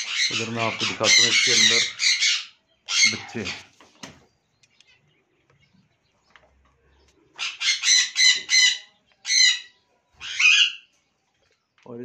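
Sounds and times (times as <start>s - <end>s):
parrot screeching: 0.0s - 3.6s, 7.4s - 10.9s.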